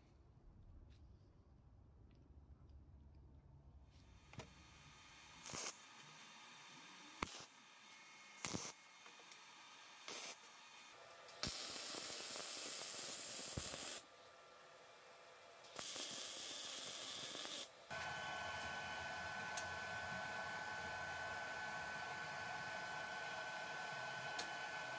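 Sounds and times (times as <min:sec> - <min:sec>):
welding arc hissing: 0:05.4 - 0:05.9, 0:07.2 - 0:07.6, 0:08.4 - 0:08.8, 0:10.0 - 0:10.5, 0:11.3 - 0:14.2, 0:15.7 - 0:18.0.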